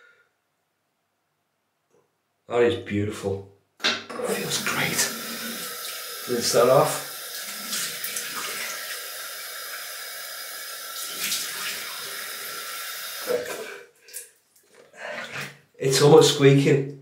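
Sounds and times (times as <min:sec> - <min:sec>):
tap water running into sink: 0:04.1 - 0:13.7.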